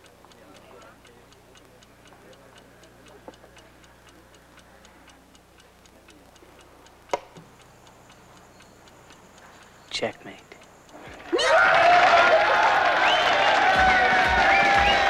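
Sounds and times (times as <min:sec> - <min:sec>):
chess clock ticking: 0:00.0 - 0:12.1
sharp click: 0:04.1 - 0:11.2.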